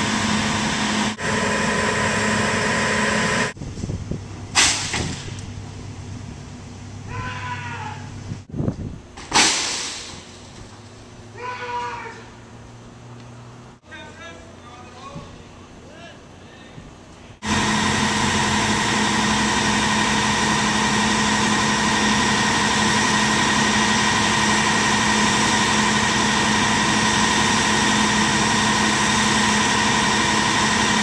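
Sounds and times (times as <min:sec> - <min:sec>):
heavy machinery humming: 0:00.0 - 0:04.6, 0:17.4 - 0:31.0.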